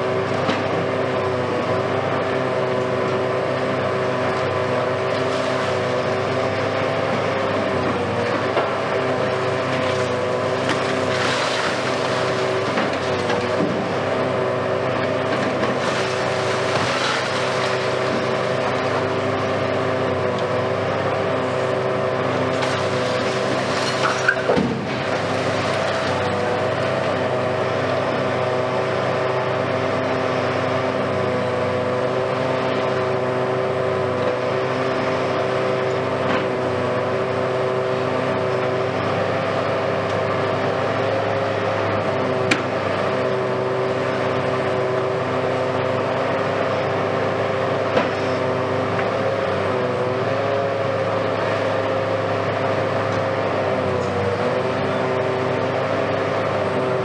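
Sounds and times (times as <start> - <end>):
excavator engine and hydraulics whine: 0.0 - 57.0.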